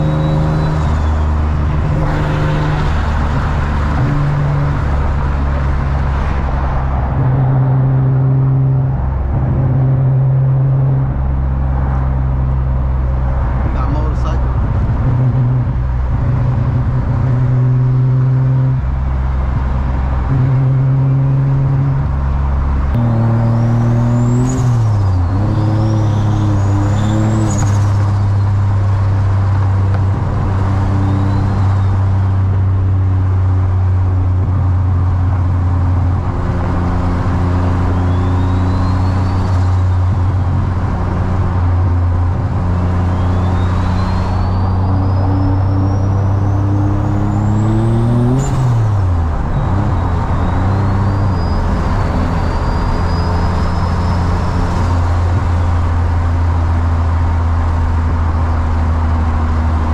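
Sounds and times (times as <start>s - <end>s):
turbo whistle: 0.0s - 2.7s, 37.6s - 40.0s, 43.0s - 48.6s
car engine droning: 0.0s - 59.9s.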